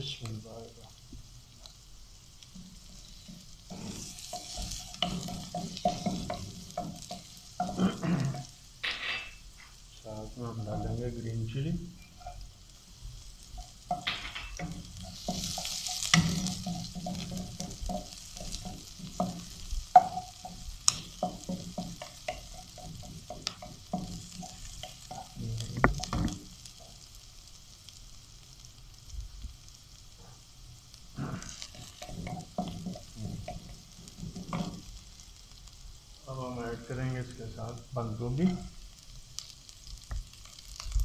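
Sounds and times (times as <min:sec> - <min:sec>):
food sizzling in hot oil: 0:00.0 - 0:41.0
wooden spatula knocking on pan: 0:02.6 - 0:08.5, 0:13.6 - 0:27.0, 0:31.5 - 0:34.9.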